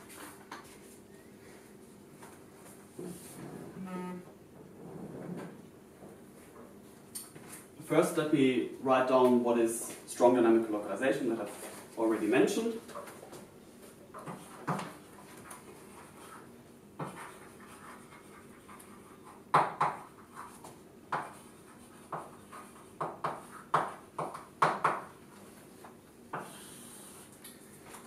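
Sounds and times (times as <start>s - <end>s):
chalk tapping and scratching: 14.2s - 26.7s
chalk scraping on chalkboard: 15.8s - 24.0s.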